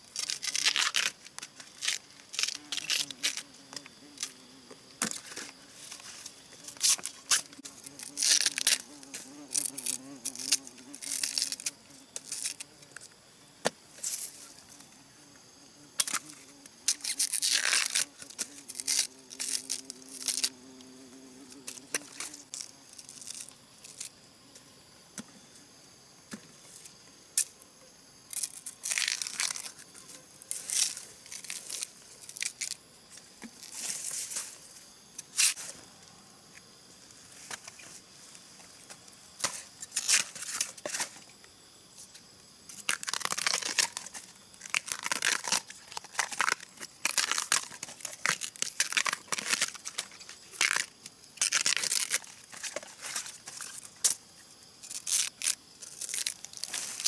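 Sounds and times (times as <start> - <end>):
husks ripping and crinkling: 0.2 - 3.5, 6.8 - 8.9, 9.5 - 12.6, 16.9 - 20.5, 28.4 - 29.8, 42.9 - 53.8.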